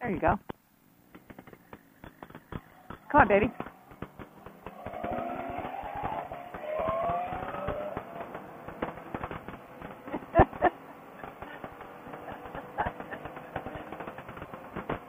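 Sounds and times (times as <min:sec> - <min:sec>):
crackling clicks and pops: 0:00.3 - 0:15.0
loud cracks: 0:01.1 - 0:10.1.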